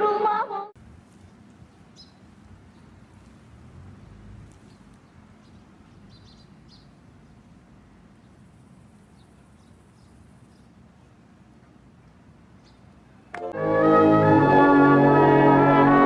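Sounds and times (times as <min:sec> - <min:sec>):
small birds chirping: 0:01.1 - 0:03.4, 0:04.0 - 0:13.3.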